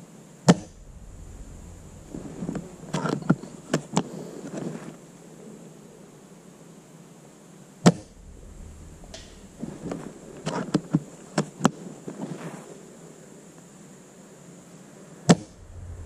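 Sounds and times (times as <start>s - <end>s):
short low thud: 0.5s - 3.7s, 8.0s - 11.1s, 15.4s - 16.0s.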